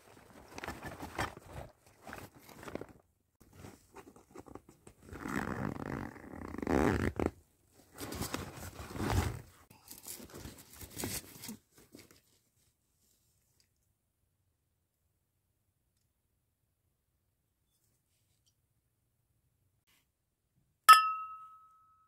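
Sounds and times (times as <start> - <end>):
zipper being pulled open: 4.4 - 7.4, 8.0 - 9.4
bag fabric rustling: 7.9 - 9.5.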